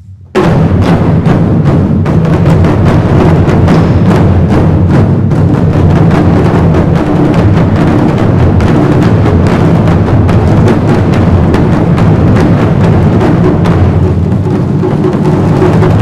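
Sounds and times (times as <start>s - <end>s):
drum ensemble playing: 0.0s - 16.0s.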